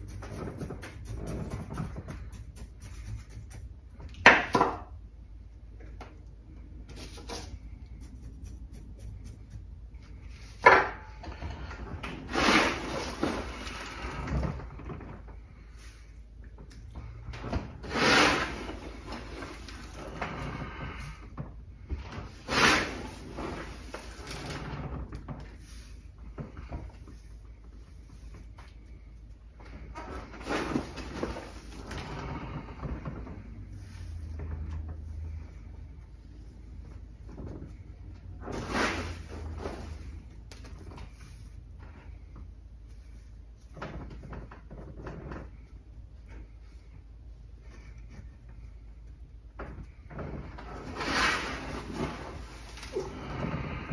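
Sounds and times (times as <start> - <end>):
hands scooping gritty soil: 12.2 - 14.2, 22.3 - 24.6, 38.5 - 40.3, 50.8 - 53.2.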